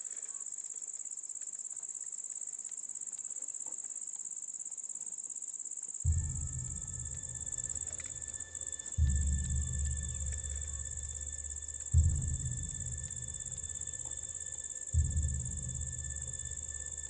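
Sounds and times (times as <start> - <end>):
insect chorus chirring: 0.0 - 17.0
low rumble: 6.1 - 17.0.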